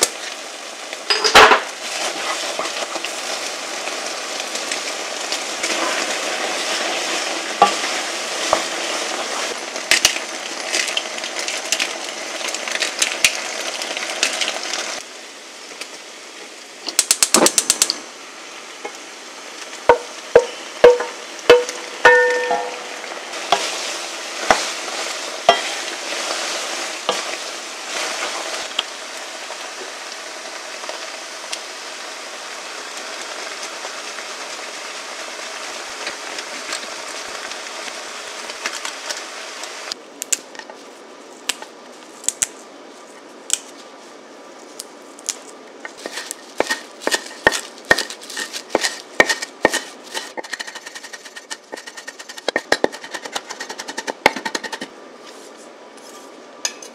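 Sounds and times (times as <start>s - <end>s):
pasta sizzling in a frying pan: 0.0s - 40.0s, 44.7s - 54.9s
wooden spoon knocking against pan: 19.9s - 22.8s.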